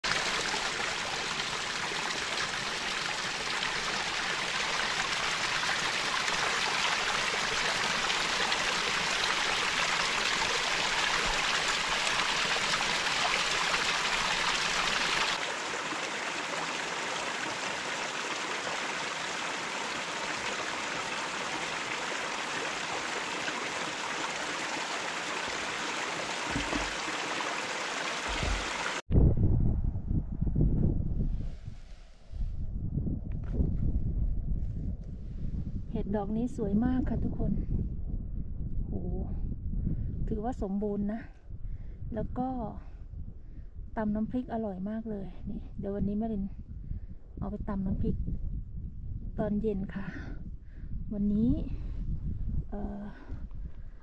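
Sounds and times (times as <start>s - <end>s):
stream water rushing: 0.0s - 29.0s.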